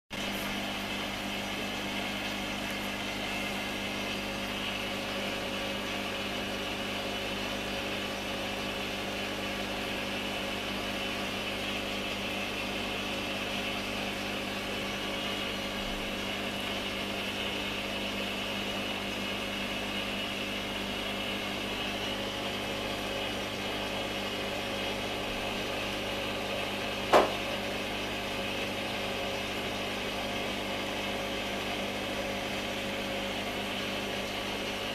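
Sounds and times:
aquarium pump humming: 0.1 - 34.9
sharp knock: 27.1 - 27.4.

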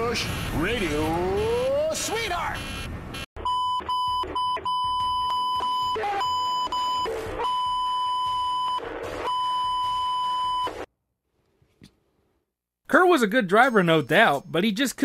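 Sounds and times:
man shouting: 5.9 - 6.4.

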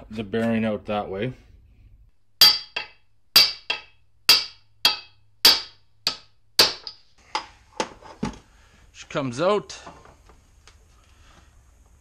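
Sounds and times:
hammer striking metal: 2.4 - 7.5.

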